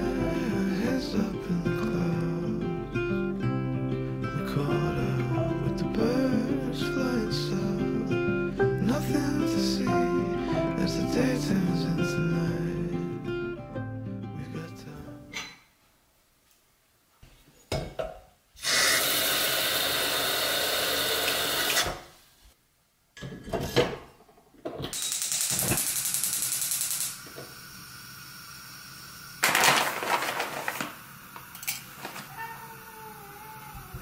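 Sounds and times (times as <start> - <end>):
kitchen clicks and knocks: 17.7 - 18.3, 23.2 - 25.0
gas stove rushing hiss: 18.6 - 22.4, 25.0 - 29.6, 30.5 - 32.4.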